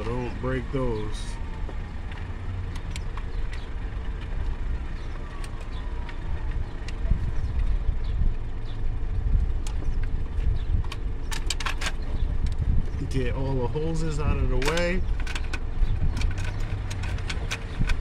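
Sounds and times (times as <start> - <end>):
steady low rumble: 0.0 - 18.0
plastic parts clicking: 14.5 - 18.0.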